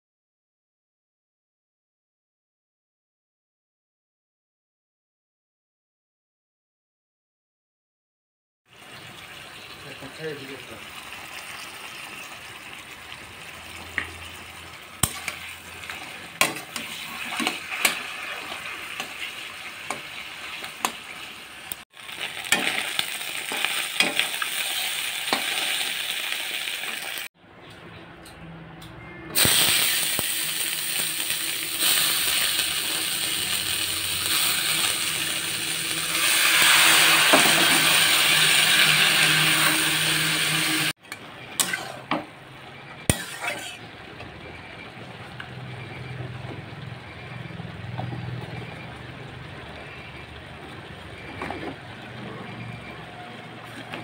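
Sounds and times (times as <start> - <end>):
fish frying in hot oil: 8.7 - 27.3, 29.4 - 40.9
spatula scraping metal pan: 15.0 - 21.0, 41.6 - 42.1, 43.1 - 43.8
grated vegetable sizzling in pan: 29.4 - 40.9.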